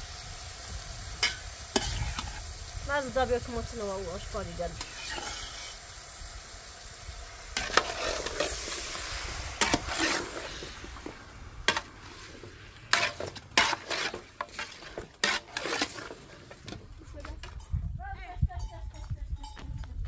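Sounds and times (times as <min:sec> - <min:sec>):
food sizzling in a pan: 0:00.0 - 0:16.2
utensil scraping a pan: 0:01.2 - 0:02.4, 0:04.3 - 0:05.8, 0:07.5 - 0:17.6.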